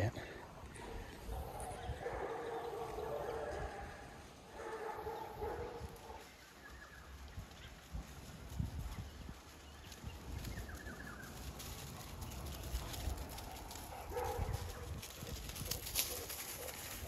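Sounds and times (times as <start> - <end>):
wind rumble: 5.3 - 17.0.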